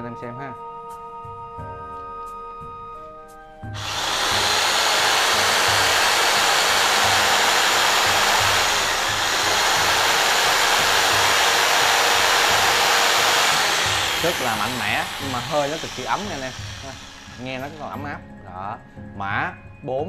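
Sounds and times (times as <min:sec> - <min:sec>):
jigsaw running: 0:03.8 - 0:18.0.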